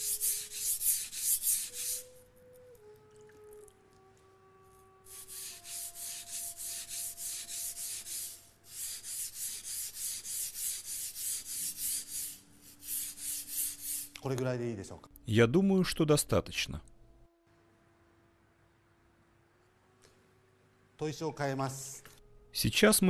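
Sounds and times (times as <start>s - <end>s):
knife rasping on whetstone: 0.0s - 2.1s, 5.1s - 14.2s.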